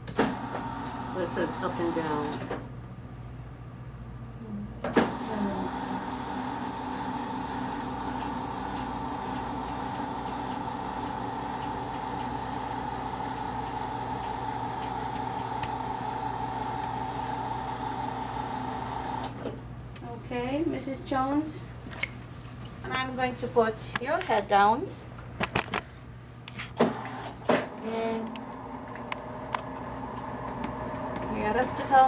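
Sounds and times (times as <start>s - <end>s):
bed lift motor humming: 4.9s - 19.5s, 26.8s - 32.0s.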